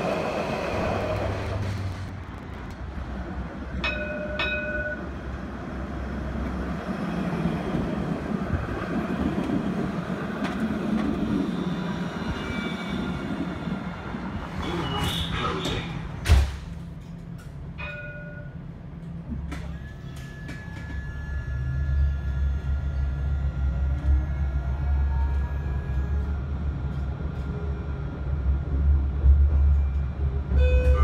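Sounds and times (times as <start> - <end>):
tram electric drive whining: 0.0 - 16.3, 18.6 - 31.0
wheels rumbling on rails: 0.0 - 31.0.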